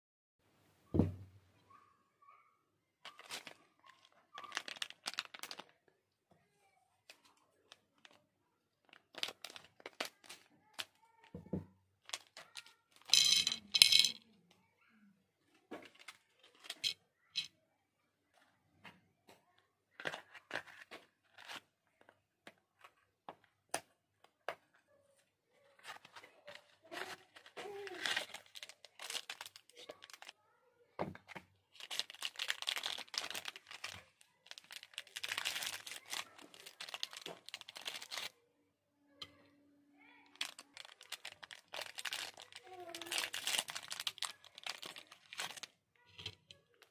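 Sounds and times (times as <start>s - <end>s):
soft thump: 1.0s - 1.3s
plastic sweet packet crinkling: 3.1s - 5.8s, 8.8s - 11.3s, 12.0s - 14.1s, 25.8s - 30.4s, 31.7s - 38.4s, 40.2s - 46.9s.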